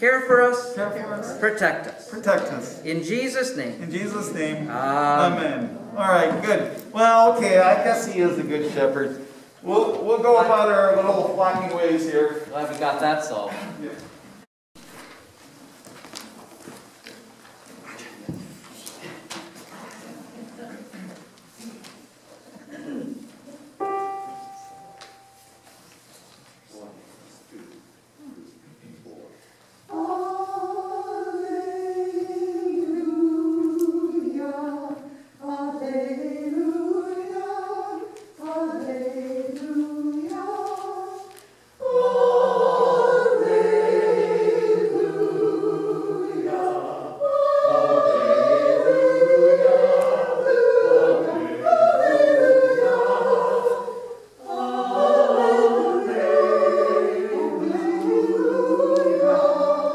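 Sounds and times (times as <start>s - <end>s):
choir singing: 29.9s - 59.9s.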